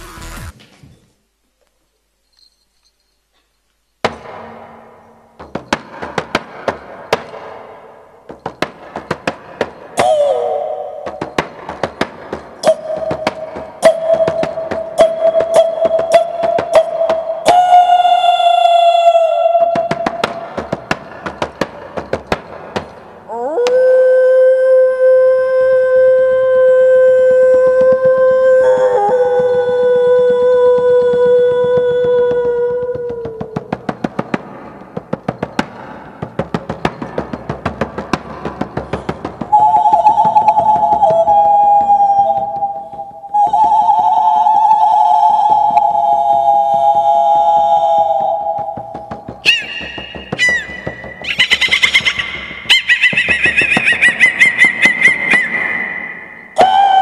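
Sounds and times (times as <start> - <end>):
frame drum beats: 4.1 - 10.2, 10.9 - 23.3, 29.8 - 43.9, 45.3 - 55.4
wavering vocal cry: 10.0 - 11.3, 12.6 - 20.8, 23.3 - 33.8, 39.5 - 57.0
woman singing high note: 23.3 - 33.3, 39.5 - 49.6, 56.6 - 57.0.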